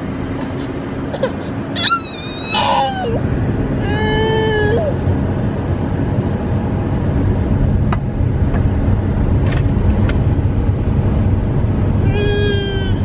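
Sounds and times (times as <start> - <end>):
car cabin road and engine rumble: 0.0 - 13.0.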